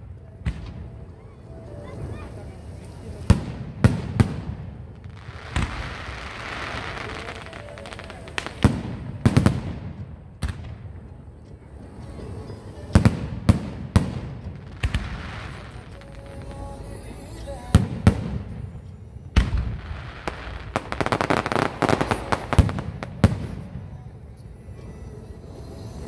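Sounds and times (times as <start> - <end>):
crackling hiss of sparks: 5.0 - 8.8, 14.6 - 23.6.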